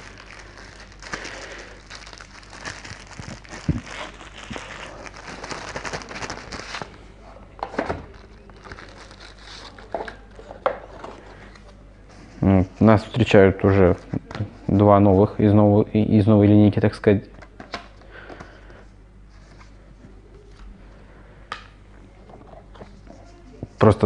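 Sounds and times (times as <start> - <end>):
plastic bags crinkling: 0.0 - 7.0, 8.1 - 10.4.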